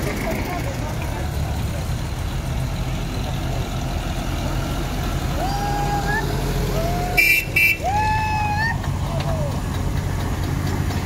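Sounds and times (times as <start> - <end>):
tractor engine rumbling: 0.0 - 11.0
horn toots: 7.0 - 8.0.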